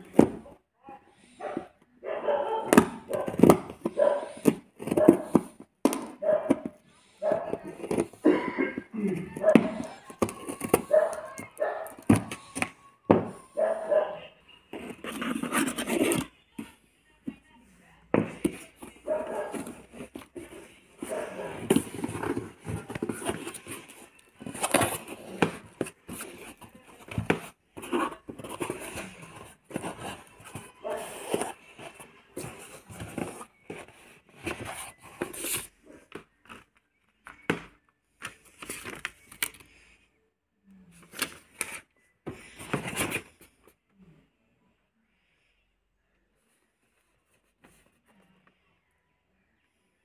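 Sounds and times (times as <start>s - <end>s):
box handling noises: 0.0s - 0.6s, 2.6s - 17.4s, 18.1s - 39.8s, 41.0s - 43.8s.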